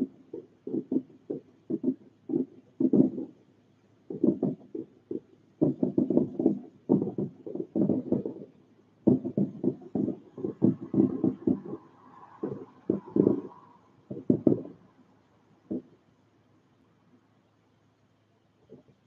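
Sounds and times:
distant fireworks booming: 0:00.0 - 0:03.4, 0:04.1 - 0:14.9, 0:15.7 - 0:16.0.

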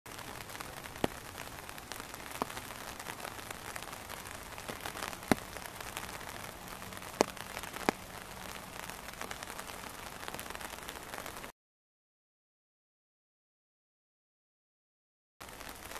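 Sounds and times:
water running through rocky stream: 0:00.1 - 0:11.4.

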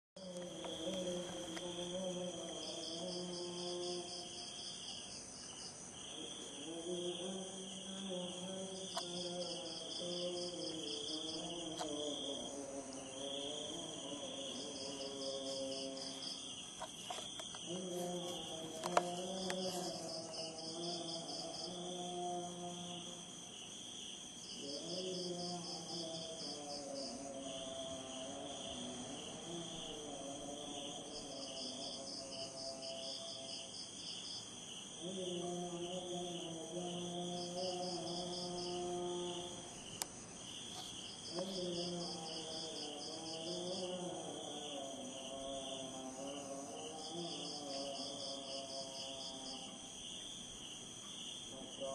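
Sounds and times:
insects chirping: 0:00.2 - 0:51.9
rapid pulsing insect trill: 0:00.2 - 0:51.9.

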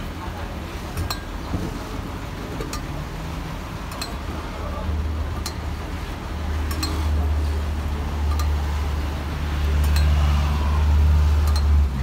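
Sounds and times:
metal mugs clinking: 0:06.6 - 0:07.1.

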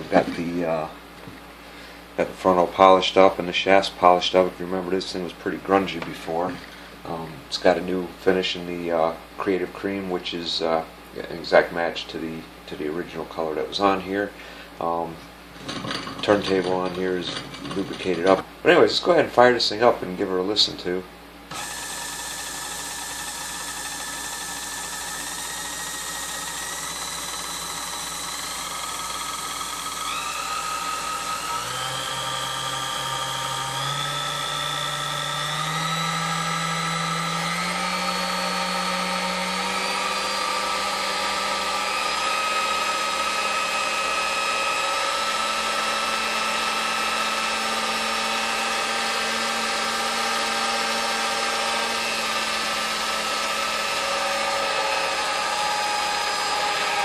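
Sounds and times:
stand mixer motor humming: 0:21.5 - 0:57.0.

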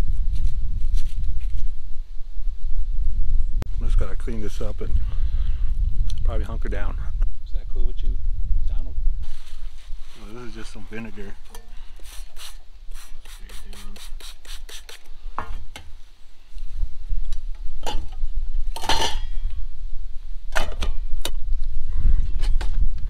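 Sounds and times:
low rumble: 0:00.0 - 0:11.7.

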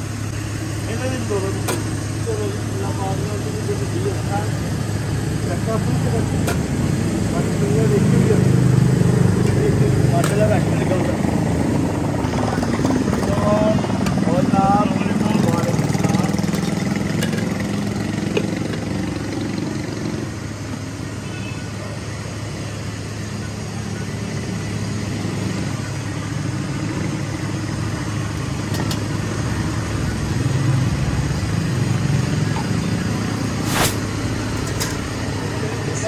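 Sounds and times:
motorcycle and car engines: 0:00.0 - 0:36.0.

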